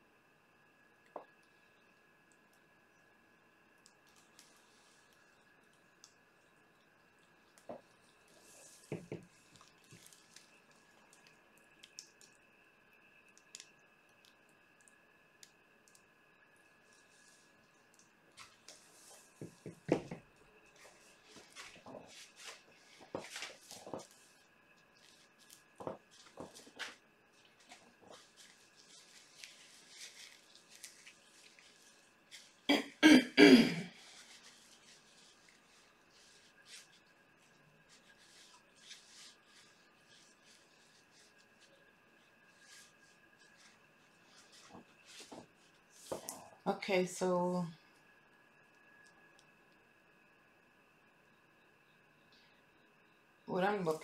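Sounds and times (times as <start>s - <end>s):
faint high whine: 0.0s - 54.0s
faint clicks and ticks: 3.7s - 8.2s, 13.2s - 22.0s
faint rustling: 18.3s - 32.7s, 34.0s - 46.6s
person coughing: 32.7s - 34.0s.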